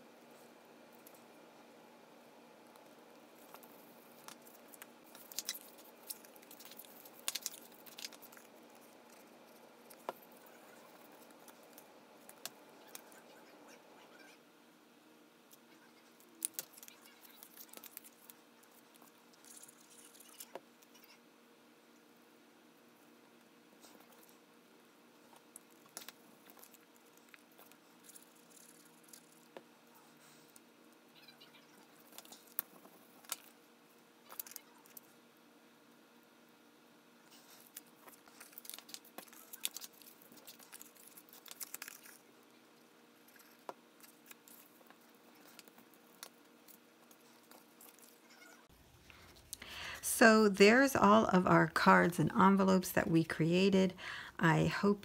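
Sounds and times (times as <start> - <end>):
low room hum: 0.0 - 55.0.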